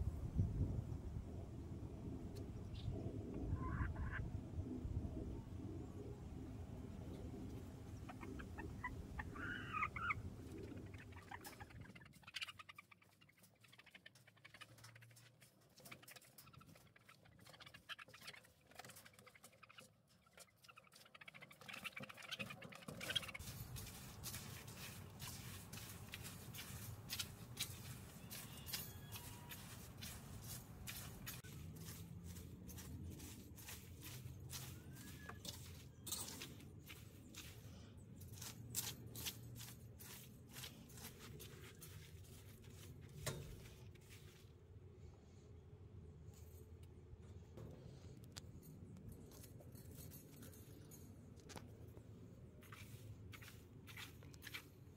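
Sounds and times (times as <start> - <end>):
hen call: 3.5 - 4.2, 8.2 - 10.2, 27.8 - 30.4
wire rake scraping wood shavings: 20.4 - 44.5.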